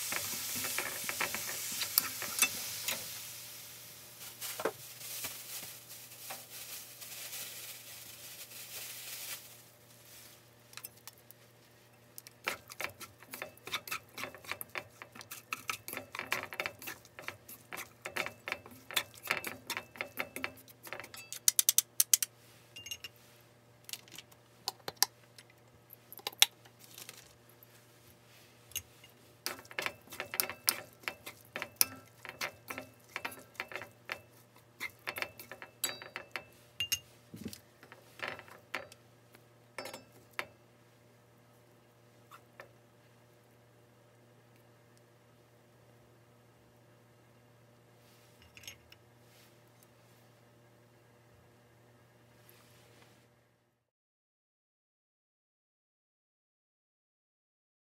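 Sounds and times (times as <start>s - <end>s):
wooden utensils tapping a pan: 0.0s - 2.6s, 12.5s - 22.3s, 29.5s - 37.0s
cabbage sizzling in a pan: 0.0s - 10.4s.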